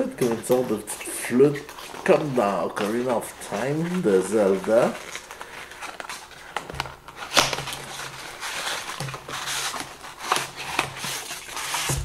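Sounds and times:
plastic rustling and crinkling: 0.0 - 12.0.

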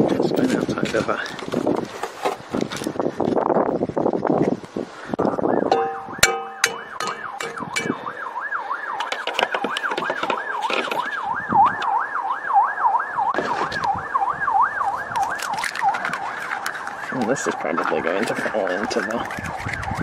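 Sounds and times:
emergency siren yelping: 7.1 - 19.5.

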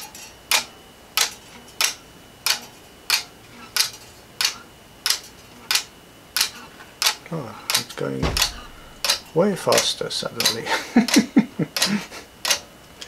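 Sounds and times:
escapement ticking: 8.2 - 10.6.

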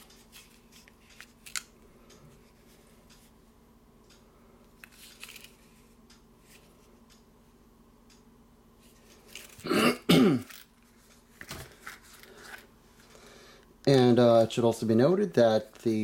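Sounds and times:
man clearing his throat: 9.6 - 10.5.

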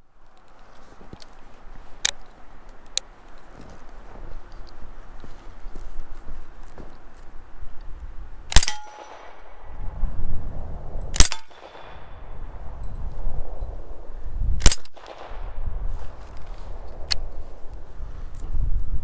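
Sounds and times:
footsteps crunching in snow: 0.2 - 8.2, 15.8 - 18.7
gunshots with echo: 8.5 - 10.2, 11.1 - 12.8, 14.6 - 17.6.

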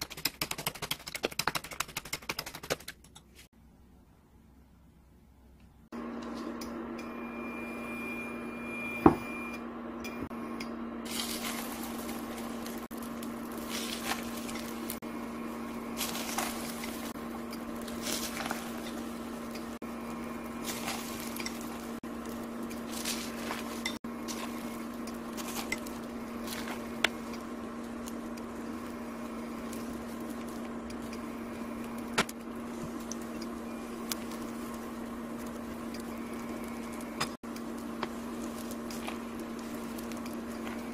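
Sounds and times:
steady low hum: 3.5 - 40.9
crackling sizzle of frying: 10.4 - 40.9.

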